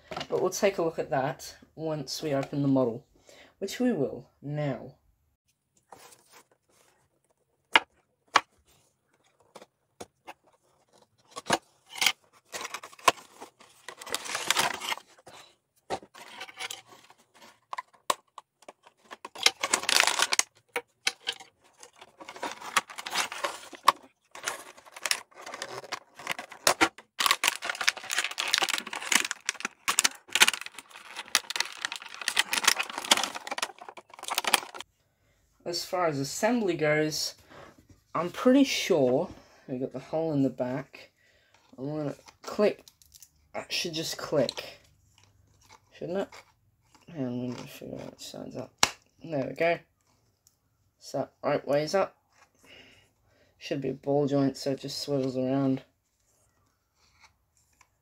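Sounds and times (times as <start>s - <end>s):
plastic tray crinkling: 7.8s - 34.8s
packaging clicks and snaps: 16.2s - 34.8s.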